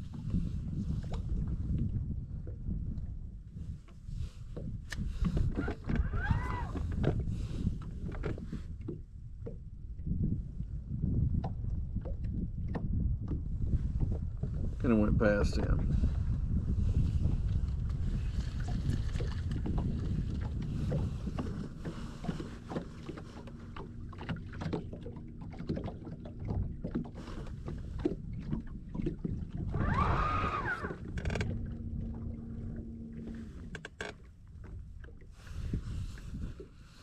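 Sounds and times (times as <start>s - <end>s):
water lapping at hull: 0.0s - 37.0s
wind rumbling on microphone: 0.0s - 37.0s
knocks and taps on boat: 3.8s - 10.2s, 11.1s - 15.9s, 19.0s - 29.7s.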